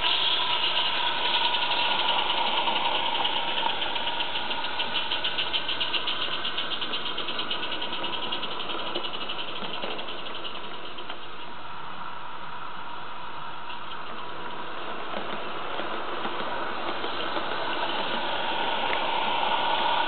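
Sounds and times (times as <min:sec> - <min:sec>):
steam hiss: 0:00.0 - 0:20.0
steam locomotive chuffing: 0:00.0 - 0:20.0.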